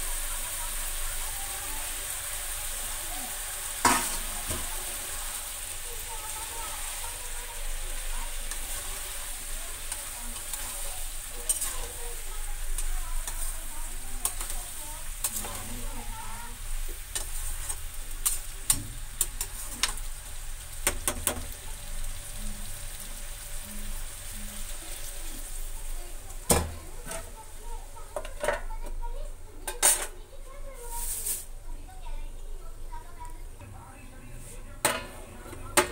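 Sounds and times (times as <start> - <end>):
vegetables sizzling in a pan: 0.0 - 35.9
steel plate clanking on pan: 3.8 - 4.7
metal spatula scraping pan: 8.5 - 13.6, 14.2 - 18.4.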